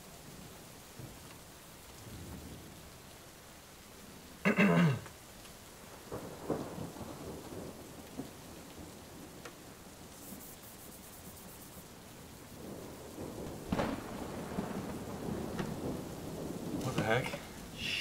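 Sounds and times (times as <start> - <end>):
steady rain: 0.0 - 18.0
thunder rumbling: 1.9 - 3.0, 5.8 - 18.0.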